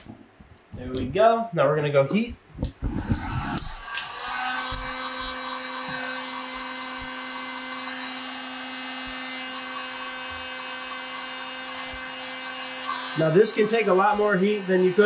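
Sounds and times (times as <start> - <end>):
heat gun motor hum: 2.9 - 15.0.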